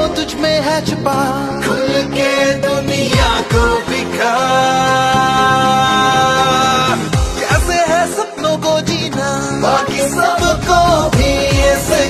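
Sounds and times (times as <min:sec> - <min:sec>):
song accompaniment: 0:00.0 - 0:12.0.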